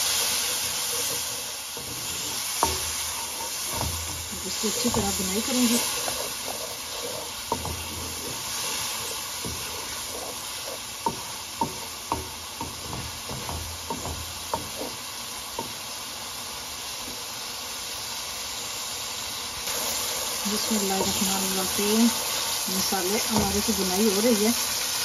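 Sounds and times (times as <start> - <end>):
paste sizzling in oil: 0.0 - 25.0
wooden spoon knocking against pan: 0.9 - 15.8, 23.2 - 24.0.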